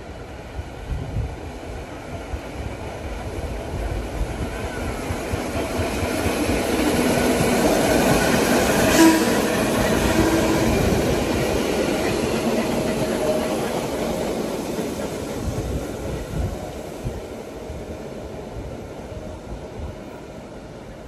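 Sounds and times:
subway train on rails: 0:00.0 - 0:21.0.

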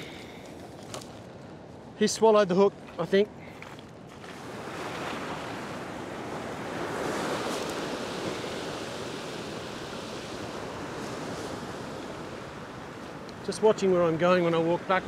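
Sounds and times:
ocean waves washing over rock: 0:04.2 - 0:15.0.

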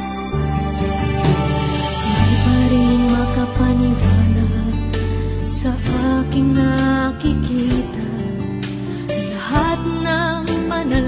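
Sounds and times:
background music with held notes: 0:00.0 - 0:11.0.

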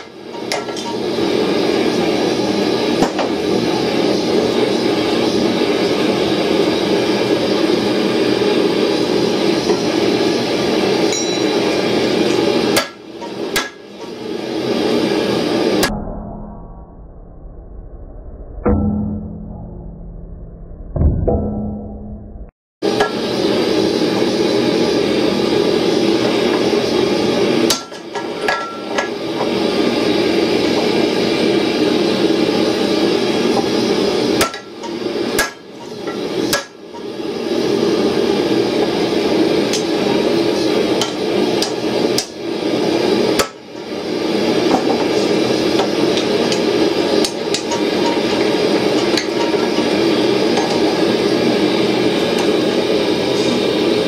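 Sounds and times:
hammer striking steel on anvil: 0:00.0 - 0:01.0, 0:11.1 - 0:11.8, 0:12.7 - 0:13.9, 0:27.7 - 0:29.2, 0:34.4 - 0:37.1, 0:41.0 - 0:42.4.

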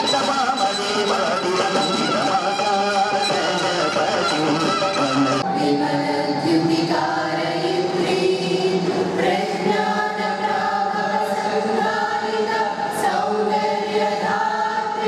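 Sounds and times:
choir singing long notes: 0:00.7 - 0:15.0.

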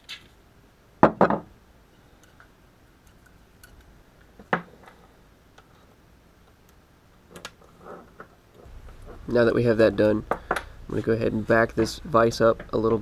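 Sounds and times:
small metal parts clicking: 0:02.2 - 0:03.9.

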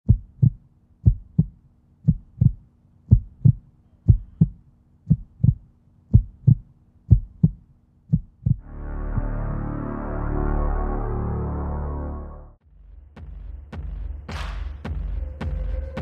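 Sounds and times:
heartbeat thumps: 0:00.0 - 0:08.6
faint steady hum: 0:00.1 - 0:08.6
ambient synth music: 0:08.6 - 0:12.6.

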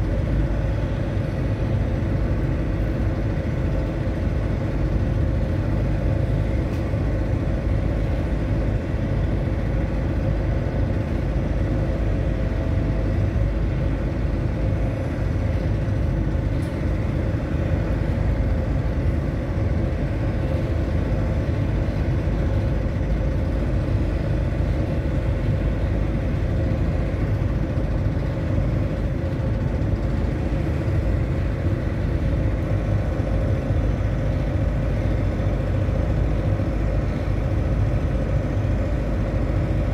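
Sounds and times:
low engine rumble: 0:00.0 - 0:39.9.

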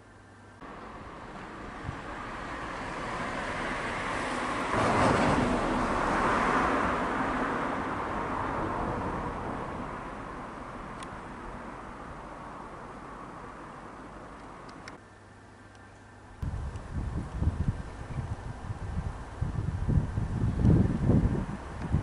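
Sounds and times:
car driving past: 0:00.6 - 0:11.9.

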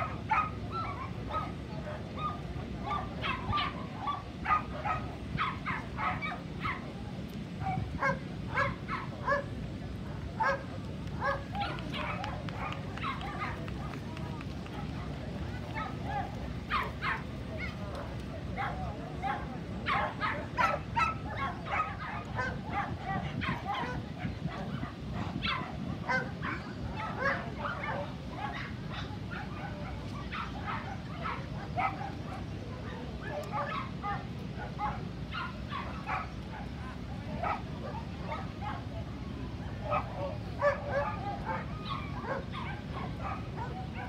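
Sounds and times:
murmur of crowd chatter: 0:00.0 - 0:44.0
dog barking: 0:00.3 - 0:01.6, 0:02.2 - 0:06.8, 0:07.6 - 0:09.5, 0:10.4 - 0:10.6, 0:11.2 - 0:13.6, 0:18.6 - 0:36.7, 0:39.9 - 0:44.0.

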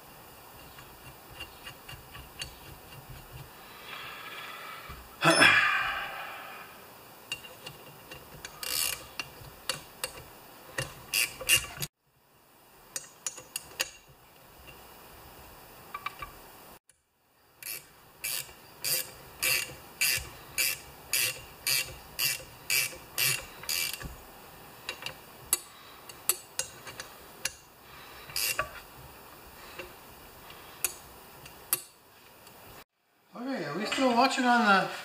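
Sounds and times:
metal clicks and taps: 0:07.3 - 0:11.9, 0:12.9 - 0:14.8, 0:24.9 - 0:27.6, 0:30.8 - 0:32.6
metal ratcheting: 0:07.3 - 0:11.9, 0:17.6 - 0:24.2, 0:28.3 - 0:28.8.

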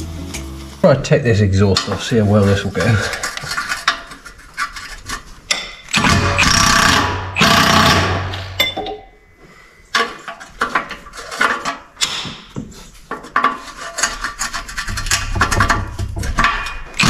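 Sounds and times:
power tool running: 0:06.0 - 0:08.6
metallic clinks and knocks: 0:08.3 - 0:09.1.

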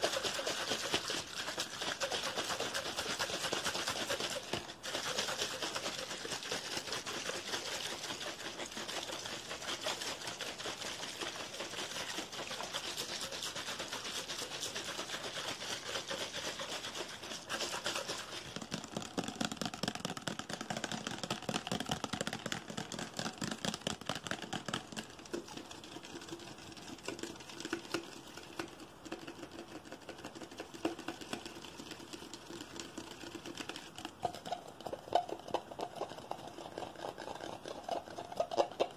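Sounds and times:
fingernails tapping crinkly plastic: 0:18.4 - 0:25.4
tapping on a plastic bottle: 0:18.4 - 0:25.6.

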